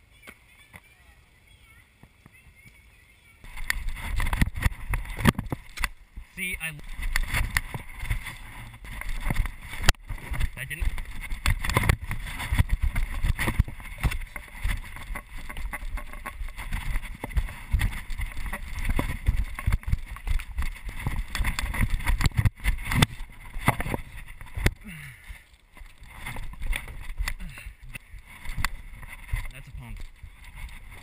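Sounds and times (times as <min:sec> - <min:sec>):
wind rumble: 0:03.4 - 0:25.0.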